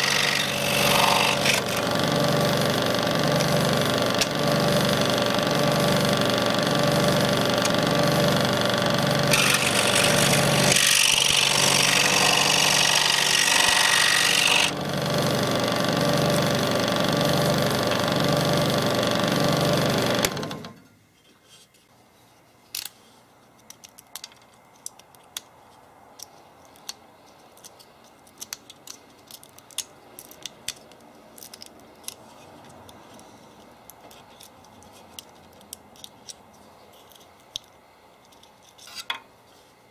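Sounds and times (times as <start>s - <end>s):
scroll saw cutting: 0.0s - 20.7s
hand tool clicking and scraping: 22.7s - 39.2s.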